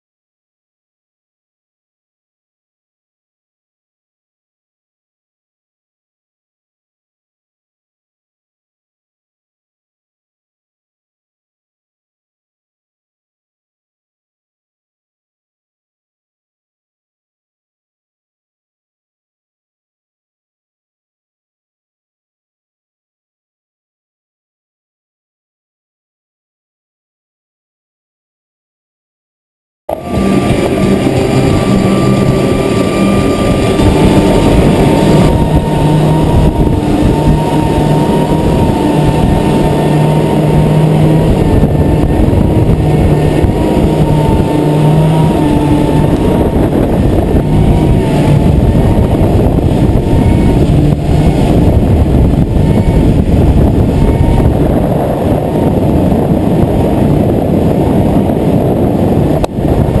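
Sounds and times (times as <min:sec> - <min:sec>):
outboard motors droning: 0:29.9 - 1:00.0
rushing wind: 0:29.9 - 1:00.0
water noise from wake: 0:29.9 - 1:00.0.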